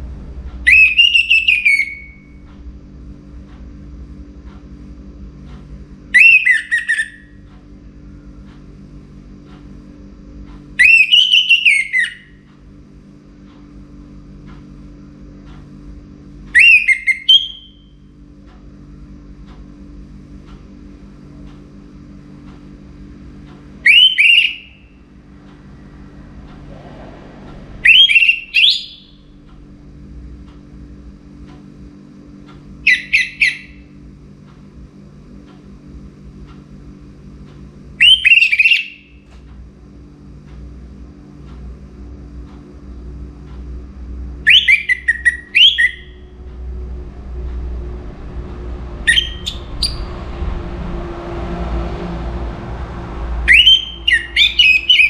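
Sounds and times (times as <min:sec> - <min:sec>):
low steady hum: 0:00.0 - 0:55.0
thrush singing whistled phrases: 0:00.7 - 0:02.3, 0:06.2 - 0:07.2, 0:10.8 - 0:12.3, 0:16.6 - 0:17.8, 0:23.8 - 0:24.9, 0:27.8 - 0:29.2, 0:32.9 - 0:33.7, 0:38.0 - 0:39.0, 0:44.5 - 0:46.2, 0:49.1 - 0:50.1, 0:53.5 - 0:55.0.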